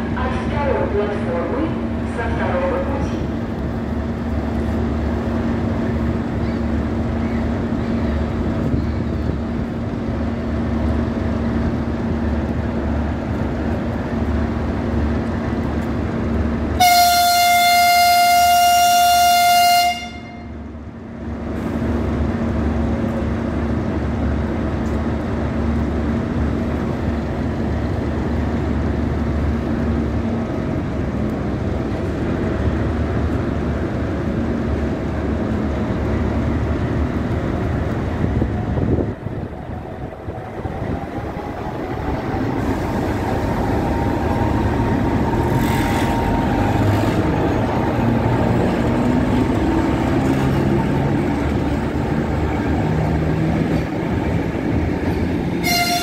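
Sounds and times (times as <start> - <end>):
train horn blast: 16.8 - 20.6, 55.5 - 56.0.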